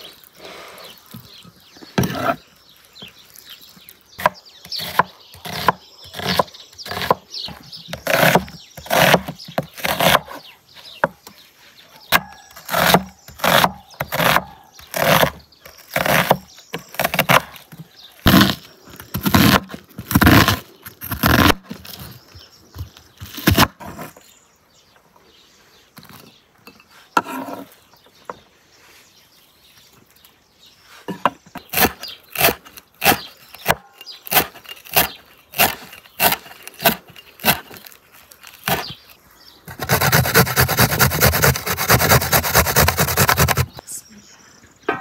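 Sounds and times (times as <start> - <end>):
cleaver chopping on wooden board: 4.2 - 10.4, 12.1 - 17.6.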